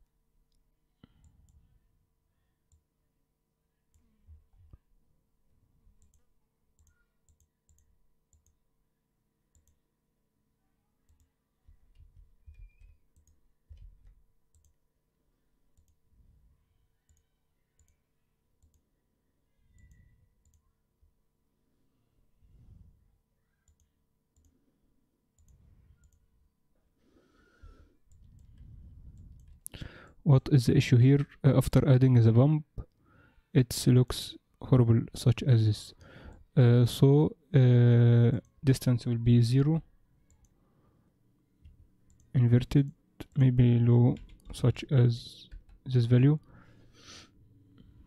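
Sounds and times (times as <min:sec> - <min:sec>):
computer mouse clicks: 0:06.0 - 0:08.6, 0:11.9 - 0:14.8, 0:17.1 - 0:18.0, 0:19.7 - 0:20.6, 0:25.4 - 0:26.3, 0:28.1 - 0:29.7.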